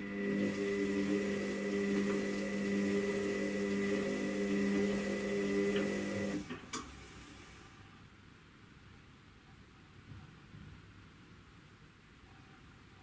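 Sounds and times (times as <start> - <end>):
washing machine drum motor humming: 0.0 - 7.6.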